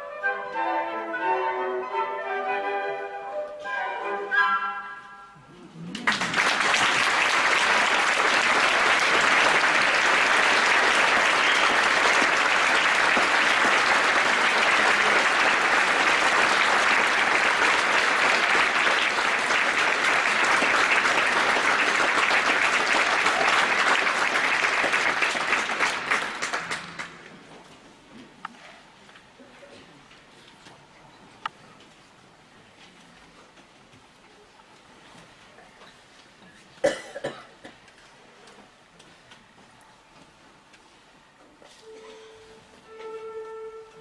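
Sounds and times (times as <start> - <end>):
audience applauding: 5.9 - 27.3.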